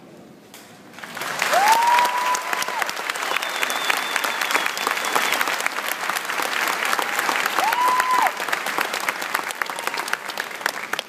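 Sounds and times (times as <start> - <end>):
large audience applauding: 0.9 - 11.0
held whistle: 3.3 - 5.5.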